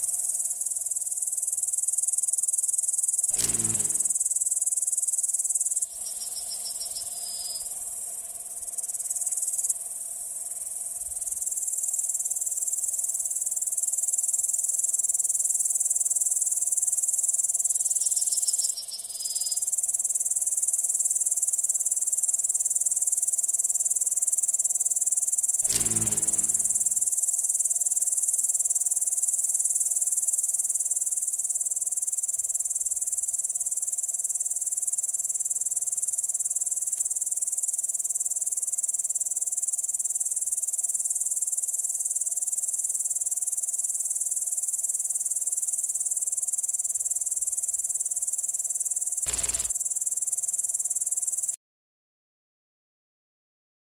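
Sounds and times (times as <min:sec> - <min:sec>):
high-pitched insect chirring: 0:00.0 - 0:09.7, 0:16.0 - 0:22.5, 0:25.4 - 0:27.8, 0:37.4 - 0:51.6.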